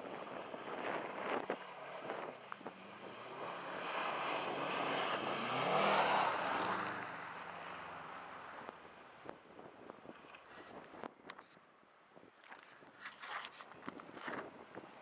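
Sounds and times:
car driving past on snow: 0.4 - 8.7.

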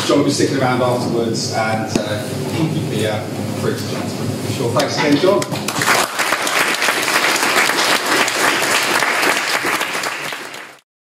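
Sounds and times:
audience applauding: 5.6 - 10.8.

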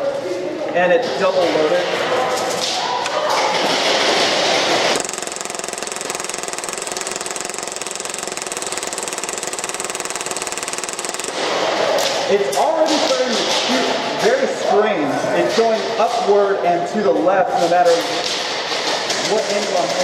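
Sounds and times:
airsoft pistol firing full auto: 4.9 - 11.8.

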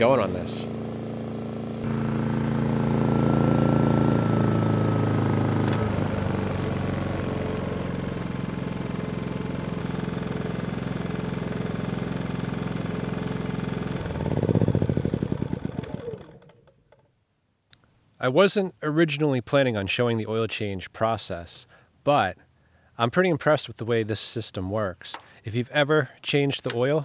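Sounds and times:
generator engine running: 0.0 - 16.7
generator sputtering and winding down: 0.0 - 16.7.

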